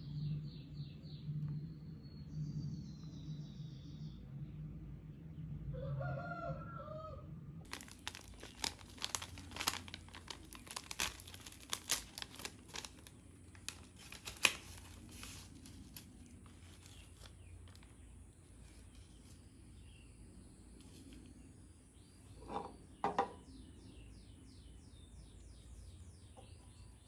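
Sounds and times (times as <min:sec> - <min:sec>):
plastic sachet crinkling: 0:07.7 - 0:18.0.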